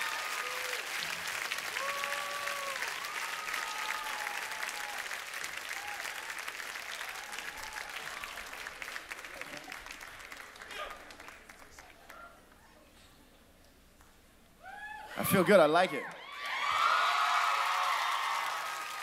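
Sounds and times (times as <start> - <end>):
high whoops: 0.0 - 1.0, 1.7 - 6.3, 6.9 - 8.6, 14.6 - 19.0
audience applauding: 0.0 - 12.7, 15.9 - 19.0.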